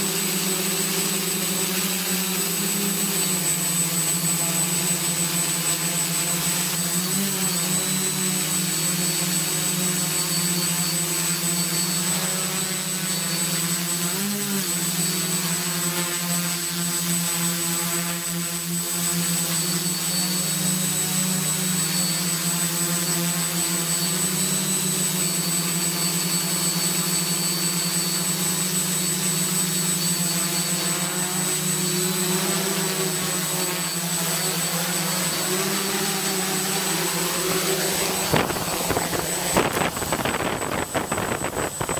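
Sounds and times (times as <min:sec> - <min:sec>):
thin high whine: 0:18.2 - 0:41.9
drone propellers humming: 0:19.8 - 0:41.9.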